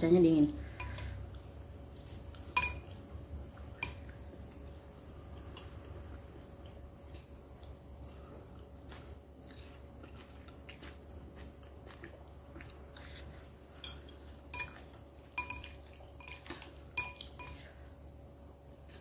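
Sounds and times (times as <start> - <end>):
utensils clinking on bowl: 0.5 - 1.3, 1.9 - 3.0, 3.7 - 4.2, 13.8 - 17.8
faint chewing of noodles: 0.5 - 19.0.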